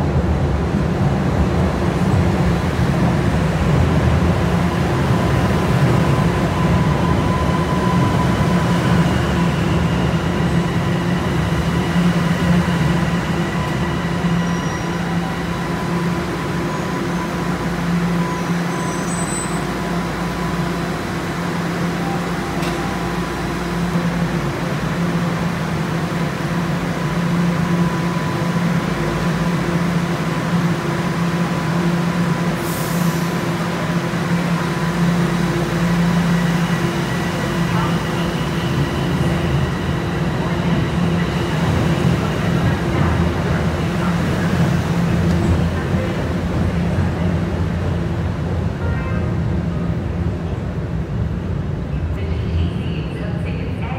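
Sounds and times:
subway train humming: 0.0 - 53.9.

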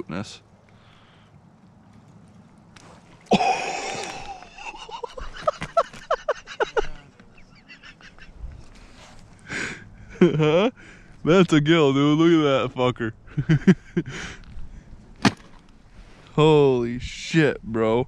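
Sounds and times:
man laughing: 3.3 - 8.4, 9.6 - 10.8, 13.3 - 14.4.

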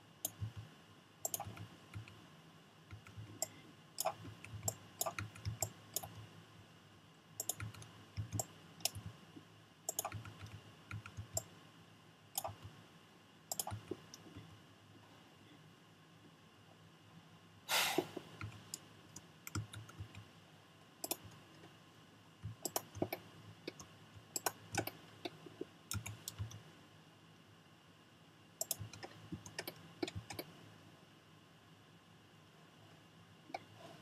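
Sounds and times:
mouse and keyboard clicks: 0.2 - 2.2, 2.9 - 6.2, 7.4 - 9.1, 9.9 - 11.5, 12.4 - 12.7, 13.5 - 14.3, 21.0 - 21.4, 22.4 - 26.6, 28.6 - 30.5
brief noisy burst: 17.7 - 18.2.

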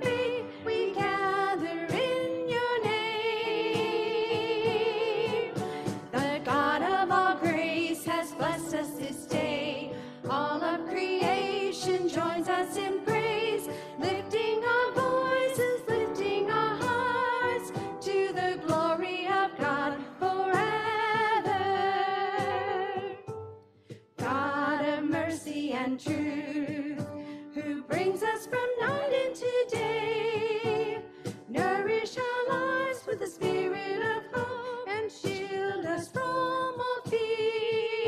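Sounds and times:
hymn singing with vibrato: 0.0 - 23.2.

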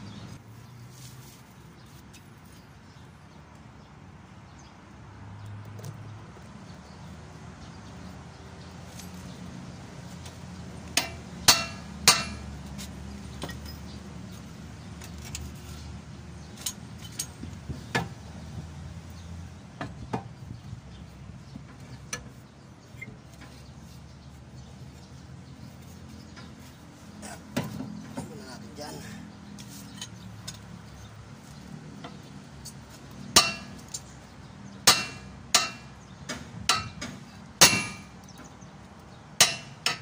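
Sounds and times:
loud metal knocks: 11.0 - 12.5, 33.3 - 33.8, 34.8 - 38.2
metal tools clanking: 16.4 - 18.2.

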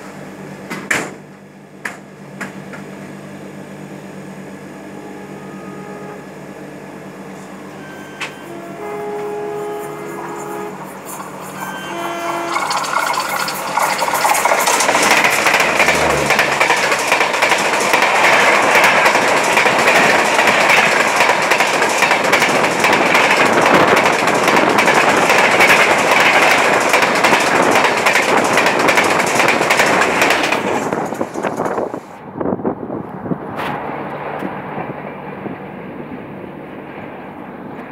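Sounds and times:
diesel locomotive passing: 1.4 - 37.9
train horn notes: 4.7 - 6.6, 7.6 - 13.2, 15.7 - 16.8
train wheels on rails: 7.3 - 37.9.

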